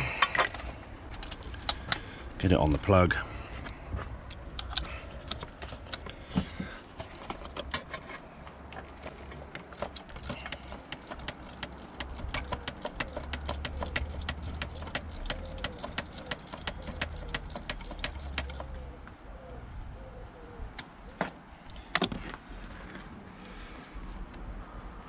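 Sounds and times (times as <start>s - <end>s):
socket ratchet clicking: 1.1s - 2.0s, 9.0s - 18.8s.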